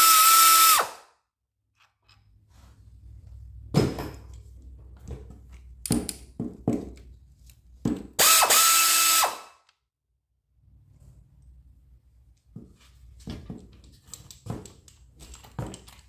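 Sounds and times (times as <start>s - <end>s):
air ratchet whir: 8.2s - 9.6s.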